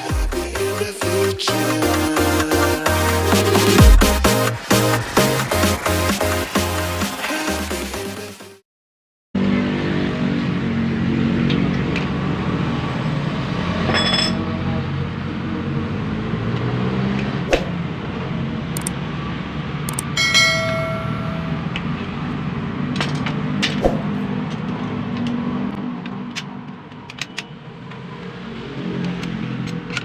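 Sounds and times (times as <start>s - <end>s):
ringing metallic clink: 13.9s - 14.5s, 20.1s - 21.7s
hand tools clicking on metal: 26.0s - 27.5s, 29.0s - 30.0s.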